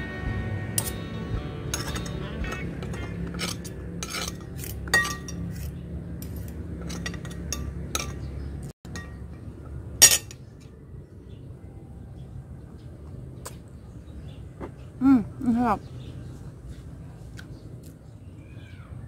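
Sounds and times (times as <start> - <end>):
cutlery clinking on ceramic plate: 1.7 - 8.3, 10.0 - 10.4.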